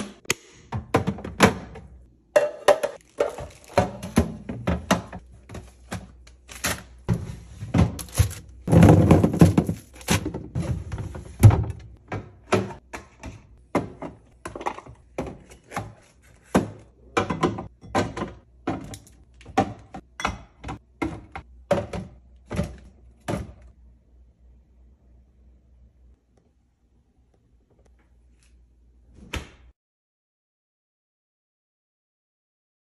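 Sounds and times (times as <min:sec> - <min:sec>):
containers knocking on shelves: 0:00.7 - 0:06.2, 0:07.1 - 0:23.6.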